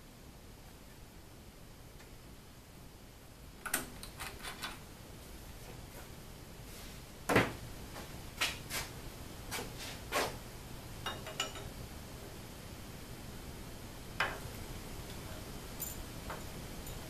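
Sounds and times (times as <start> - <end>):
metallic clinks: 15.8 - 17.0.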